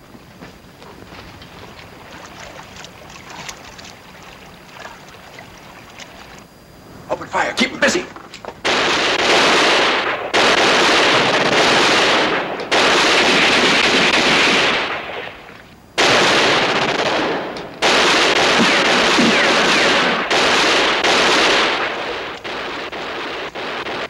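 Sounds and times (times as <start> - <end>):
machine-gun fire bursts: 8.6 - 15.4, 16.0 - 24.0.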